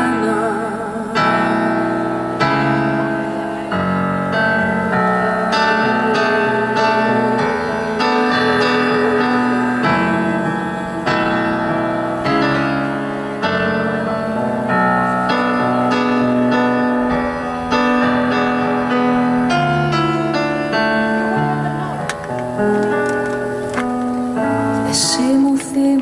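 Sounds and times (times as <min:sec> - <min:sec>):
piano chords pop ballad: 0:00.0 - 0:26.0.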